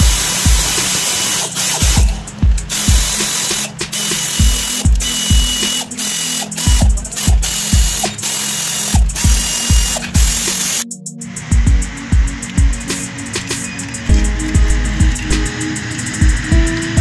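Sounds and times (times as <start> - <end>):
power ratchet wrench running: 0.0 - 10.8
background music with bass beat: 0.0 - 17.0.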